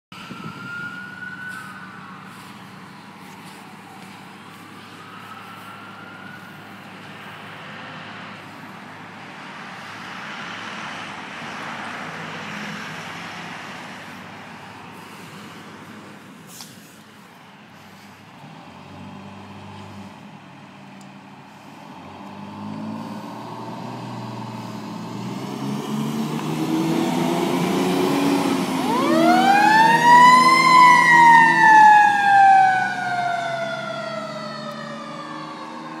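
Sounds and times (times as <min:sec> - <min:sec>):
mechanical siren wailing: 0:00.2 - 0:02.6, 0:28.5 - 0:36.0
fire truck engine running: 0:00.2 - 0:10.2, 0:26.2 - 0:36.0.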